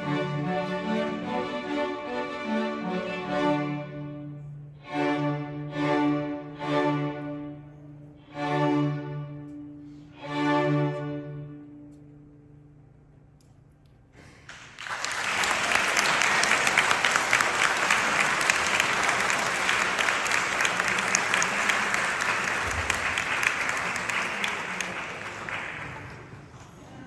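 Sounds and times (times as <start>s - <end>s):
audience applause: 14.5s - 26.6s.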